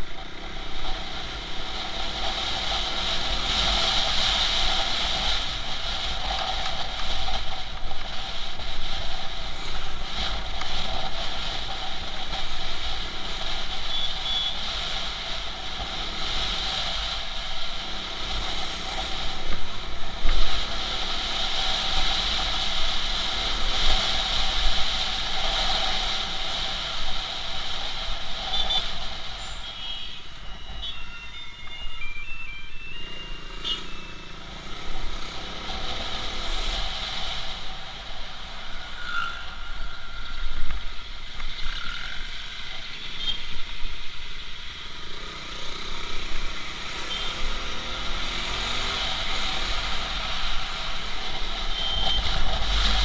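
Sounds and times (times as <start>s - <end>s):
short high beeps: 29.5s - 34.4s.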